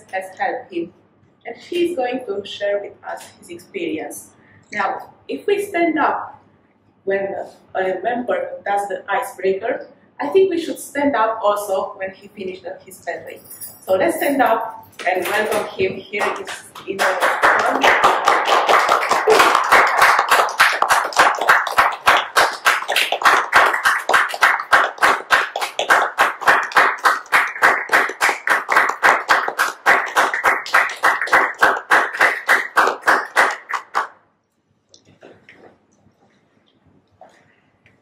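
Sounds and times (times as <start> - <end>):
audience applauding: 16.2 - 34.1.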